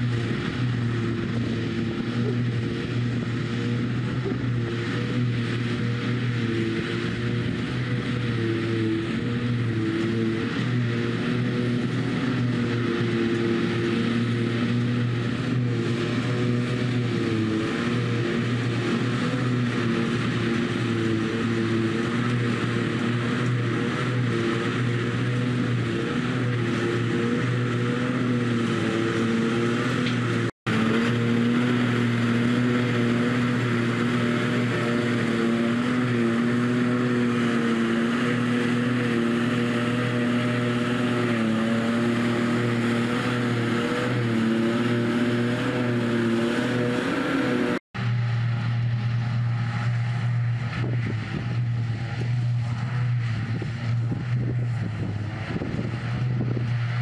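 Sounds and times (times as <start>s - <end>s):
heavy diesel drone: 0.0s - 57.0s.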